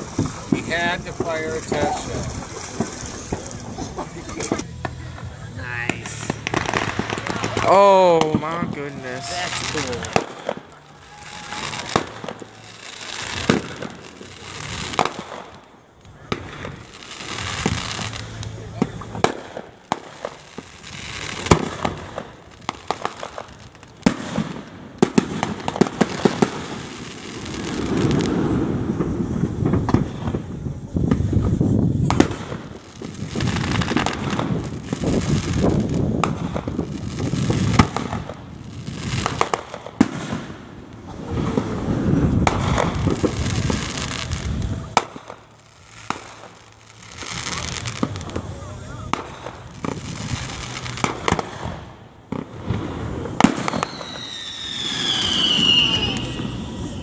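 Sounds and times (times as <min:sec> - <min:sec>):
fireworks cracking and popping: 0:00.0 - 0:57.0
low fireworks rumble: 0:00.0 - 0:57.0.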